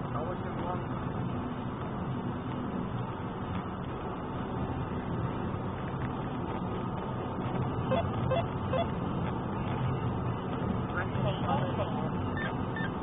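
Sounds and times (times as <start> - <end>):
car engine and tyre noise: 0.0 - 13.0.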